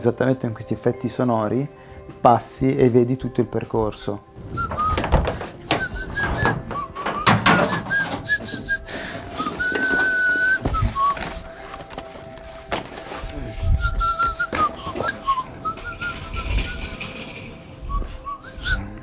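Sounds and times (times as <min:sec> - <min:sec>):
person whistling a tune: 0:04.4 - 0:11.8, 0:13.2 - 0:19.0
objects knocking and clattering: 0:04.5 - 0:13.1.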